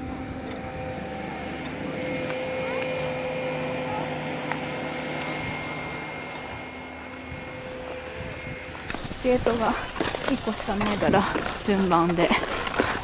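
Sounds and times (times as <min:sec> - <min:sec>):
faint machine hum: 0:00.0 - 0:13.0
distant skaters' voices: 0:00.9 - 0:08.4.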